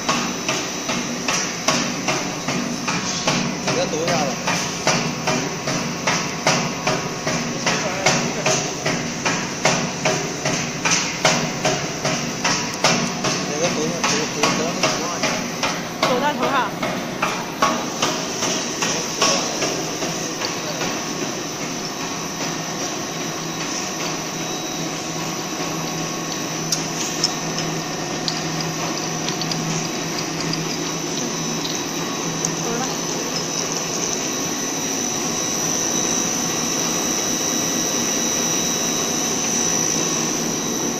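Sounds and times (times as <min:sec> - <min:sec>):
continuous mechanical rattle: 0:00.0 - 0:40.9
machinery knocking: 0:01.7 - 0:34.2.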